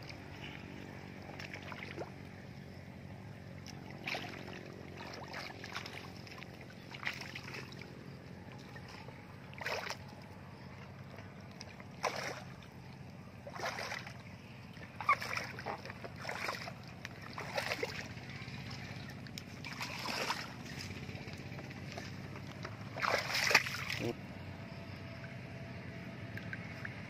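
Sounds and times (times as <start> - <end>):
legs wading through shallow water: 0.0 - 27.0.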